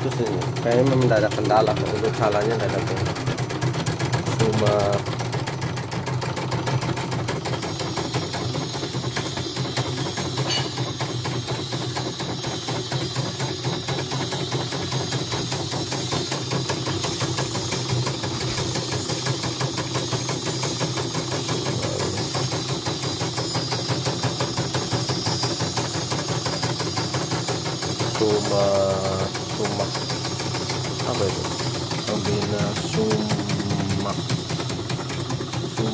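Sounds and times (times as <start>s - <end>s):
embroidery machine needle chatter: 0.0s - 35.9s
motor hum: 0.0s - 35.9s
short wavering tone: 10.5s - 10.8s.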